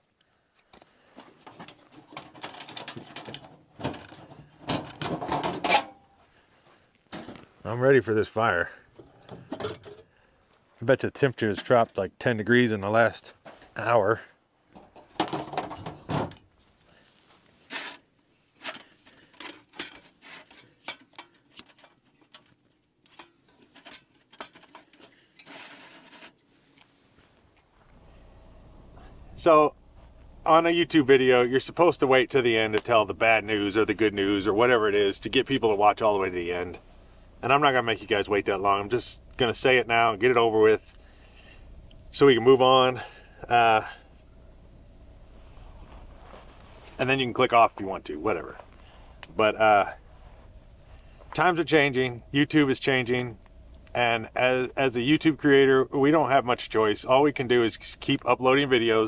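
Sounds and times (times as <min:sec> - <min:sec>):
rustles clicks and knocks: 0:00.0 - 0:06.1, 0:06.9 - 0:07.6, 0:08.9 - 0:10.6, 0:14.7 - 0:16.8, 0:17.4 - 0:26.9
gear rummaging in compartment: 0:00.7 - 0:06.1, 0:14.8 - 0:27.6
light metal clicks and clanks: 0:18.6 - 0:25.6.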